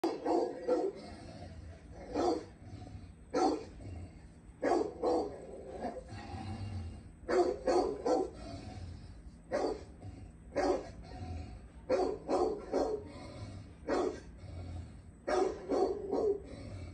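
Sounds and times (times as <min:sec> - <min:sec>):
dog barking: 0:00.0 - 0:01.0, 0:02.0 - 0:02.5, 0:03.3 - 0:03.7, 0:04.6 - 0:06.0, 0:07.3 - 0:08.4, 0:09.5 - 0:09.9, 0:10.5 - 0:11.0, 0:11.9 - 0:13.1, 0:13.9 - 0:14.3, 0:15.3 - 0:16.5.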